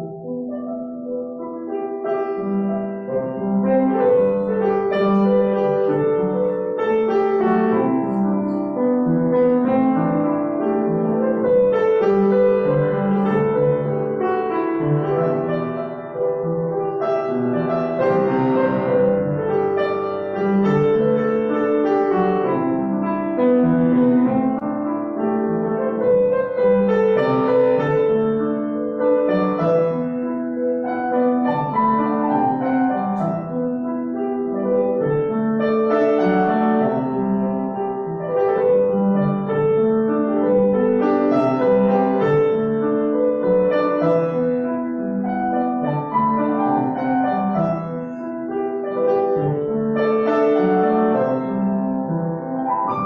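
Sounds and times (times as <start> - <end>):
solo piano piece: 0.0 - 53.0.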